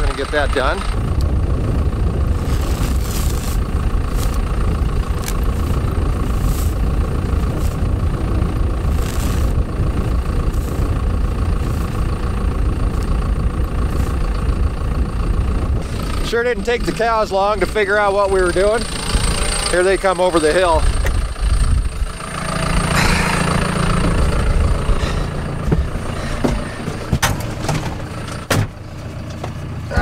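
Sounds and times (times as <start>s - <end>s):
tractor engine idling: 0.0s - 30.0s
scratchy net wrap rustles: 2.4s - 4.4s, 8.9s - 9.6s.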